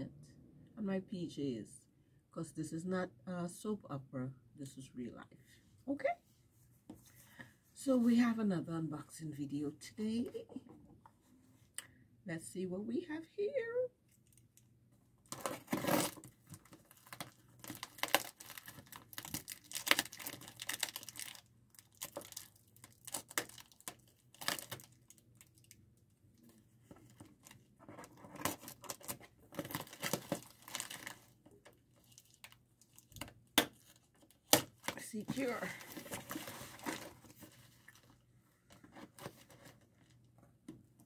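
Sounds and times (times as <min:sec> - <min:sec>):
packaging tearing and crinkling: 0:15.3 - 0:25.8, 0:28.3 - 0:31.3, 0:32.0 - 0:38.1
box cutter slitting package: 0:15.4 - 0:16.2.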